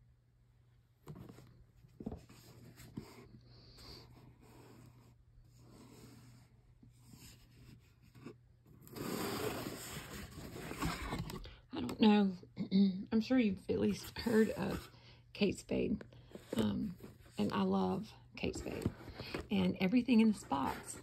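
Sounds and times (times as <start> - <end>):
cardboard box being handled: 1.0 - 3.4, 4.0 - 11.4, 18.4 - 21.0.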